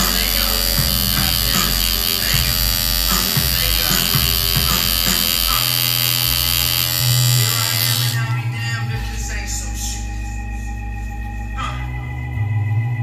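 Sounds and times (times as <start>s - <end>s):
tattoo machine buzzing: 0.0s - 8.3s
background music: 0.0s - 13.0s.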